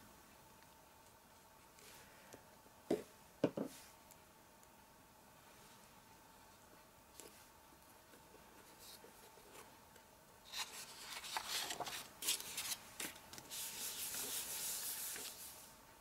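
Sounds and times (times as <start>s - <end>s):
paper rubbing and sliding: 10.5s - 15.7s.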